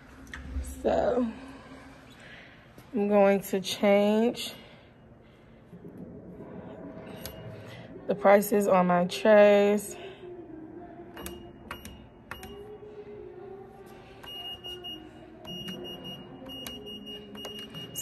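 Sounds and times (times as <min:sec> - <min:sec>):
low steady hum: 0:00.0 - 0:18.0
keypad beeping: 0:11.2 - 0:12.6, 0:14.2 - 0:18.0.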